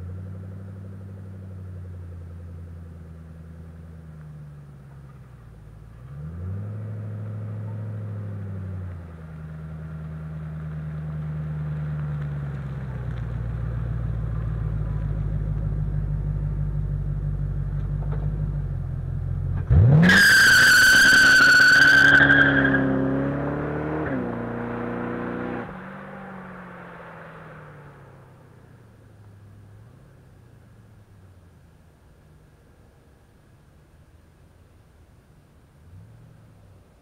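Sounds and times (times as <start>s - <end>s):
car engine revving: 4.6s - 31.1s.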